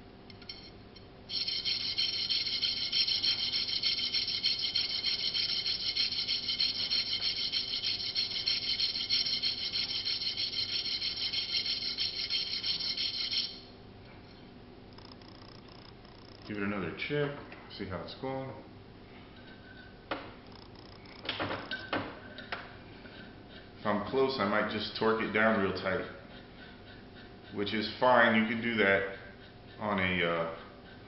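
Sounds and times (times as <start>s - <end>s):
washer rasping on metal file: 1.3s - 13.6s.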